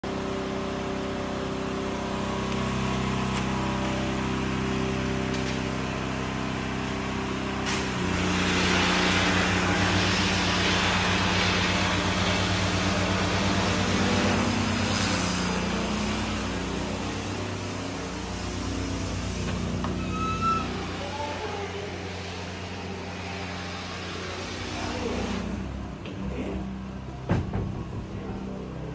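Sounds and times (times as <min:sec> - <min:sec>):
low mechanical hum: 0:00.0 - 0:28.9
hiss: 0:07.6 - 0:25.5.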